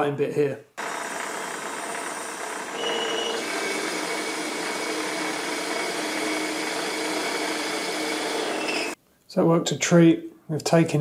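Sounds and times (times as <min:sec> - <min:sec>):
metal lathe whirring: 0:00.8 - 0:09.0.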